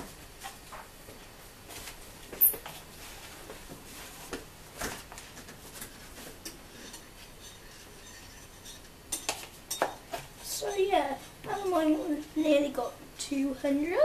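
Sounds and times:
metal spoon scraping bowls: 0:06.7 - 0:09.3, 0:10.6 - 0:12.2.

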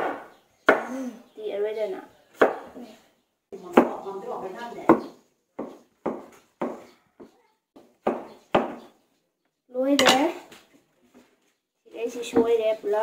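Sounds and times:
person speaking: 0:10.0 - 0:10.5.

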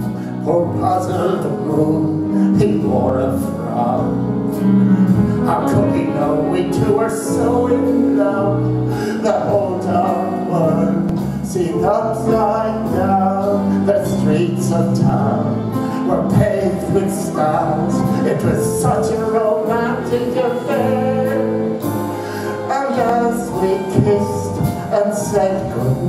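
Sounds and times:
instrumental accompaniment: 0:00.0 - 0:26.0
man singing a slow ballad: 0:00.0 - 0:26.0.

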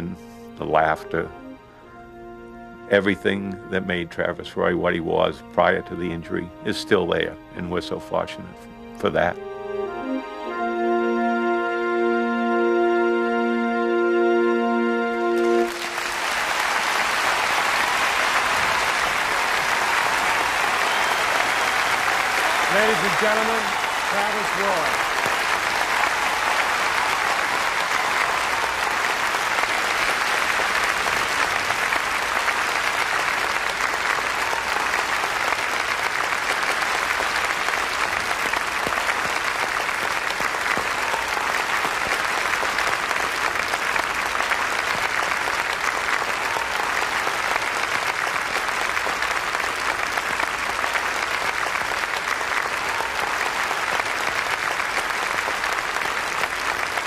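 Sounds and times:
large audience applauding: 0:15.2 - 0:57.0.

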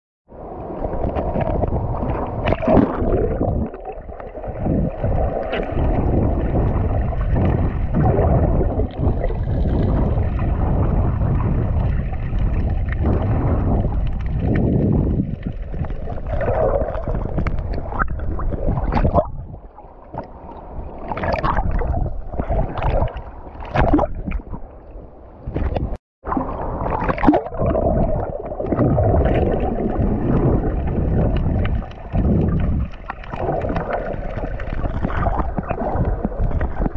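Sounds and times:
seawater sloshing underwater: 0:00.3 - 0:36.9
splashes and knocks: 0:11.8 - 0:19.4, 0:21.1 - 0:24.6, 0:25.5 - 0:36.9.

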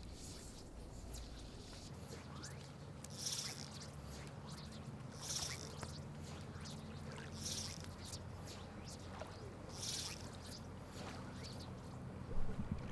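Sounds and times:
low hum: 0:00.0 - 0:12.9
high buzzy chirps: 0:02.2 - 0:11.6.

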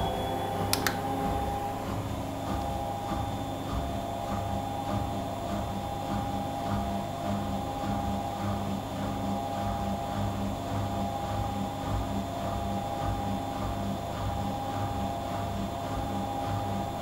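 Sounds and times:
steady higher whine: 0:00.0 - 0:05.4
pulsing low hum: 0:00.0 - 0:10.3
washing machine spinning: 0:00.0 - 0:17.0.

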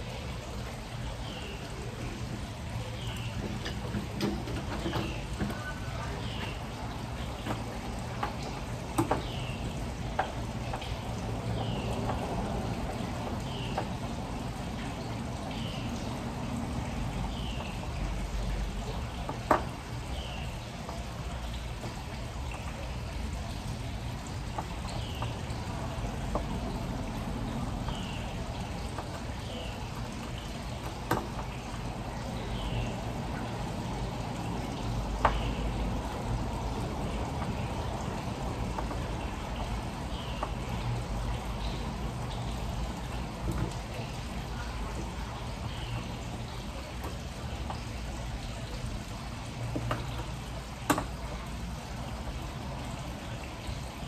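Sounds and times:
steady water-like hiss: 0:00.0 - 0:54.0.

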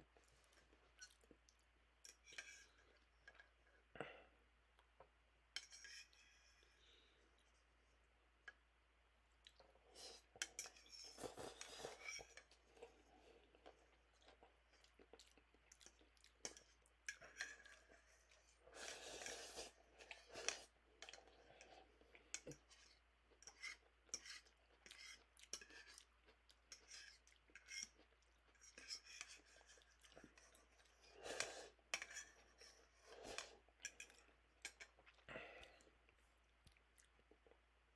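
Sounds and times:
chewing: 0:09.4 - 0:37.6.

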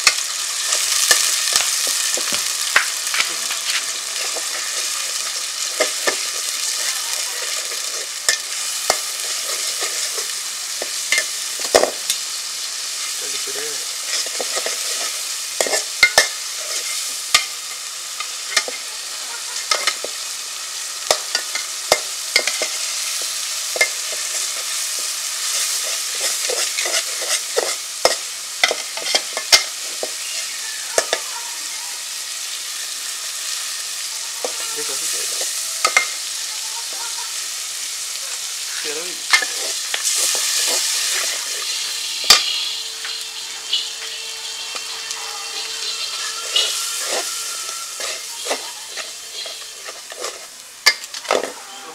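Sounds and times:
paste sizzling in hot oil: 0:00.0 - 0:51.9
spatula scraping a metal pot: 0:03.0 - 0:11.4, 0:13.9 - 0:17.6, 0:22.4 - 0:31.3, 0:39.3 - 0:51.6.

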